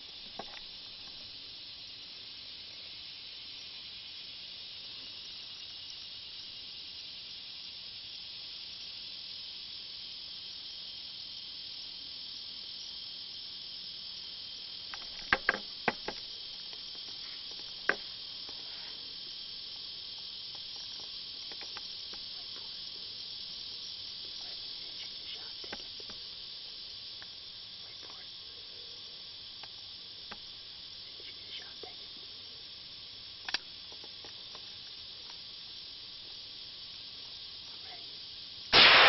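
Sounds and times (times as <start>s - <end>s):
insect chorus: 0.0s - 39.0s
sharp clicks: 38.8s - 39.0s.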